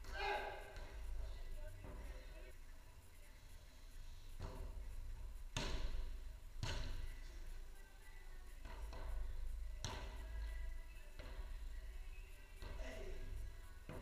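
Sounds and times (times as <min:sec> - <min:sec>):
ball struck with echoing thuds: 0:05.5 - 0:07.1.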